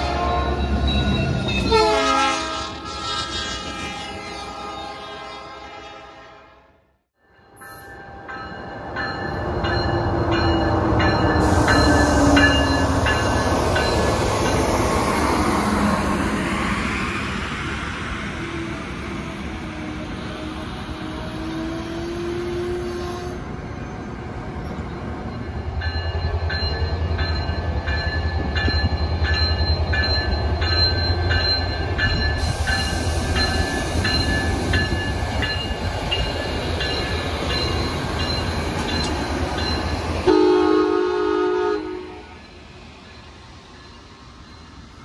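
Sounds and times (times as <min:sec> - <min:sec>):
train bell ringing: 0:00.0 - 0:02.1, 0:07.2 - 0:14.8, 0:24.6 - 0:40.4
train horn blast: 0:01.7 - 0:07.0, 0:40.2 - 0:42.4
train engine rumble: 0:08.0 - 0:45.0.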